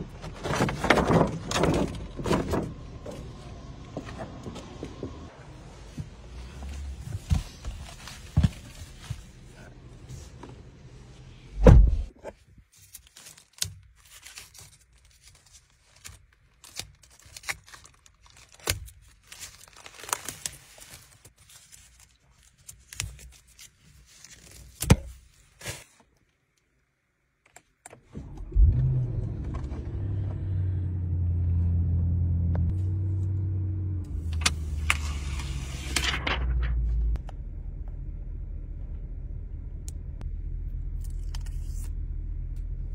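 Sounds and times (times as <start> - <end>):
loud thump: 11.6 - 12.1
plastic wrap rustling and tearing: 12.7 - 26.0
car engine starting and idling: 28.1 - 42.9.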